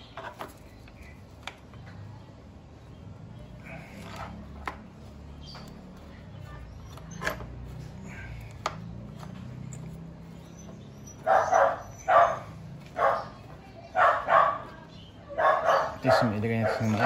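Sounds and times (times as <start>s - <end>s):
dog barking: 11.1s - 17.0s.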